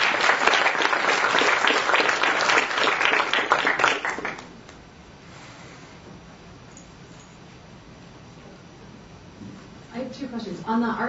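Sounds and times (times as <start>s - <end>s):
audience applauding: 0.0s - 4.5s.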